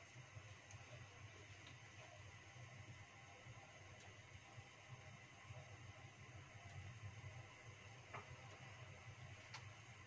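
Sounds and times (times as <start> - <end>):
faint ticks: 9.5 - 9.7.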